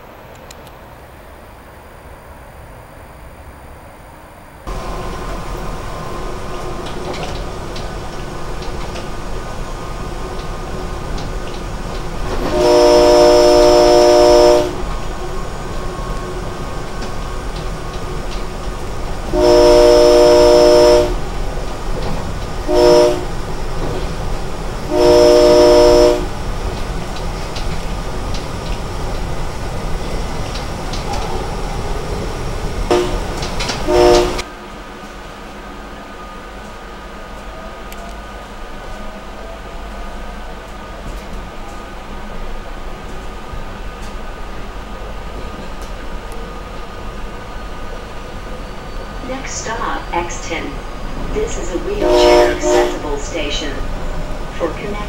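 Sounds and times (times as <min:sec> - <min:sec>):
train running on rails: 0:00.0 - 0:55.0
train air horn: 0:12.4 - 0:14.9, 0:19.3 - 0:21.3, 0:22.6 - 0:23.4, 0:24.9 - 0:26.4, 0:32.9 - 0:34.5, 0:52.0 - 0:53.4.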